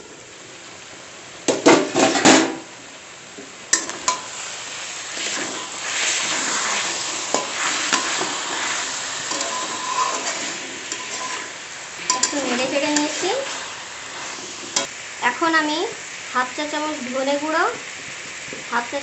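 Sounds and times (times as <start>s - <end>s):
sauce sizzling: 0.0s - 19.0s
metal spatula scraping pan: 5.2s - 14.9s
metal lid clanking on pan: 12.1s - 12.4s.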